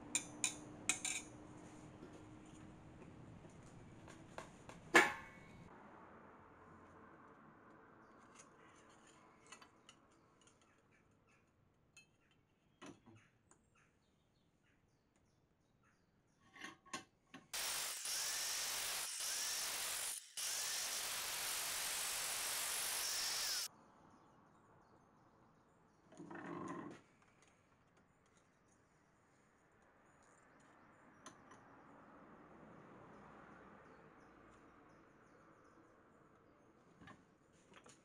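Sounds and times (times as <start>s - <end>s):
angle grinder cutting metal sheet: 17.6s - 23.7s.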